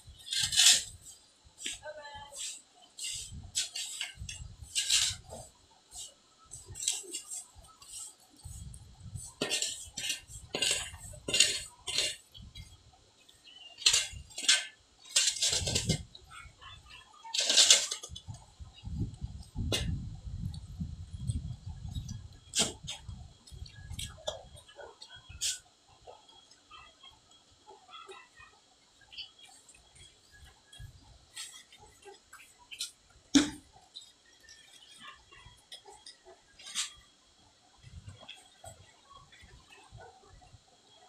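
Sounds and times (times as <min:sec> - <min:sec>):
metal tool scraping concrete: 0:00.2 - 0:00.9, 0:02.4 - 0:05.5, 0:09.4 - 0:12.2, 0:13.8 - 0:16.0.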